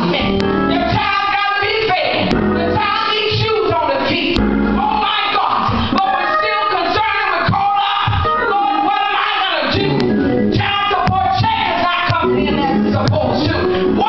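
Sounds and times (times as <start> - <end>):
woman singing through microphone: 0.0 - 14.0
sharp beat: 2.2 - 3.5, 4.3 - 6.1.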